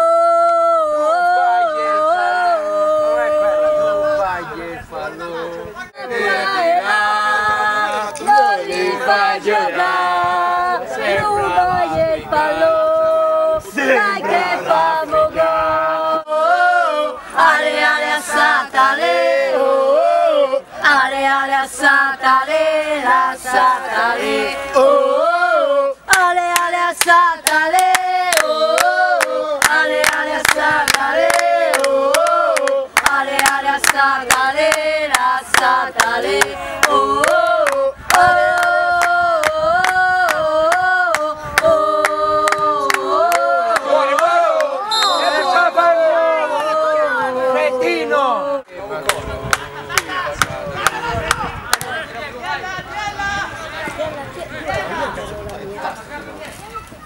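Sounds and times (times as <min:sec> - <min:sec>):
crowd singing a chant: 0:00.0 - 0:56.2.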